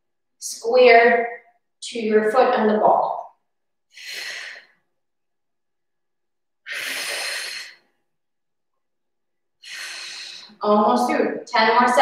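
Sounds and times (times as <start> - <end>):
woman breathing heavily: 3.9 - 4.9, 6.6 - 8.0, 9.6 - 10.6.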